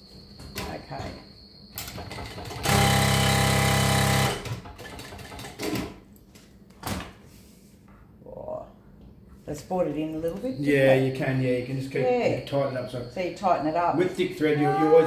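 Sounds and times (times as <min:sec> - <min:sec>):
sewing machine running: 0:02.1 - 0:05.5.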